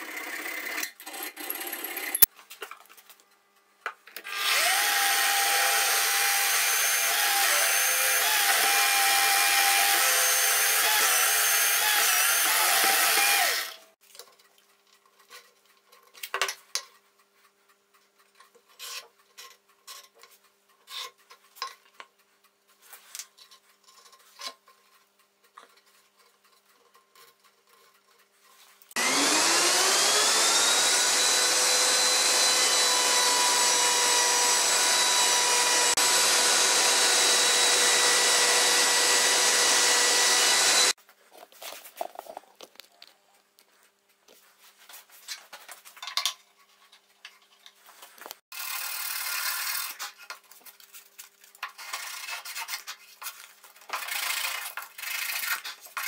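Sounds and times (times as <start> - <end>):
wood router whine: 4.2 - 13.9, 29.0 - 41.0
drill winding down: 4.3 - 13.9, 29.0 - 41.0.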